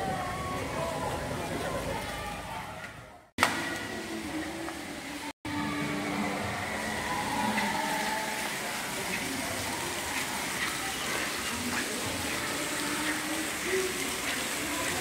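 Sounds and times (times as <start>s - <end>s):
water spraying from fountain jets: 0.0s - 15.0s.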